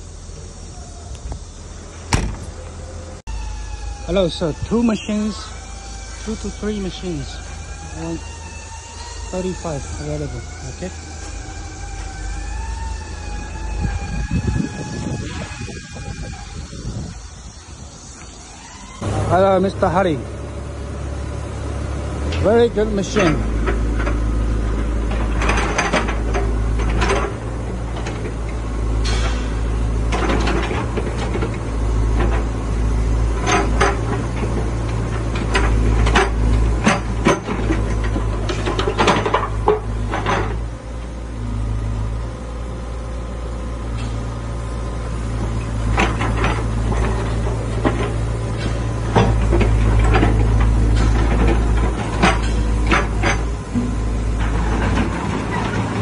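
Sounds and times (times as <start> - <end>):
diesel engine running under load: 0.0 - 56.0
excavator arm knocks and clanks: 2.1 - 2.7, 23.1 - 32.6, 33.2 - 40.8, 45.4 - 56.0.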